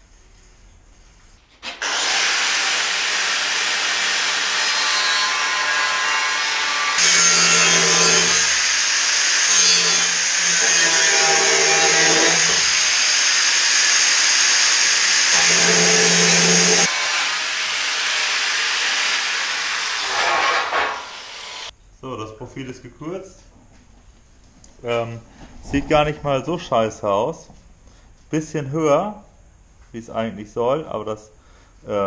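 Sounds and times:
angle grinder cutting steel: 1.6 - 21.7
high whine of grinding: 1.7 - 21.7.

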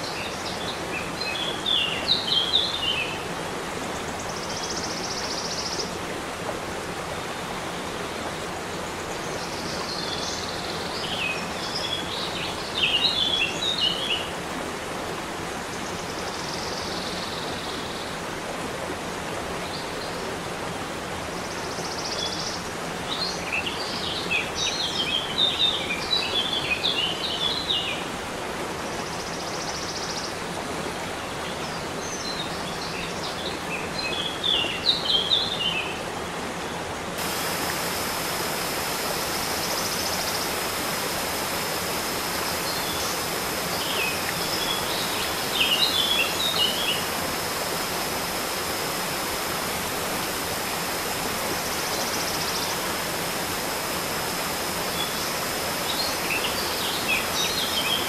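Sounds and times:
waterfall splashing over rocks: 18.1 - 58.0
songbird singing: 37.2 - 49.7, 54.1 - 58.0.

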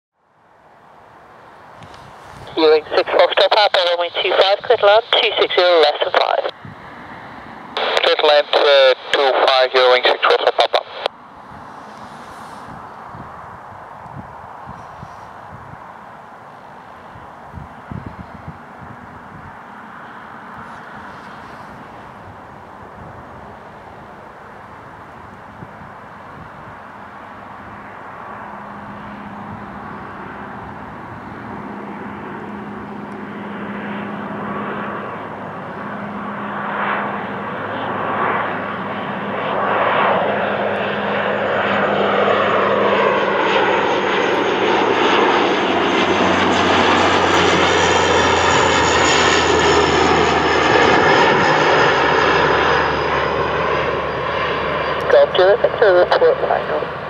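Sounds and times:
turboprop airliner drone: 0.2 - 57.0
high whine: 1.9 - 13.7.

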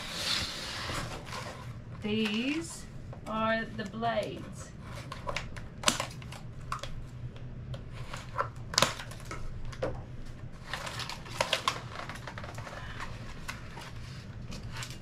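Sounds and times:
low steady hum: 0.0 - 15.0
packaging clicks and snaps: 5.0 - 9.9, 10.6 - 15.0
packaging crinkling: 10.5 - 15.0.

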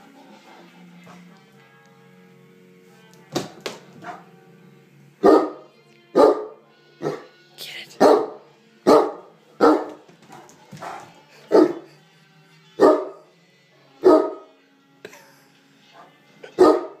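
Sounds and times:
large dog barking: 5.2 - 7.3, 8.0 - 11.9, 12.8 - 13.3, 14.0 - 14.5, 16.0 - 17.0.

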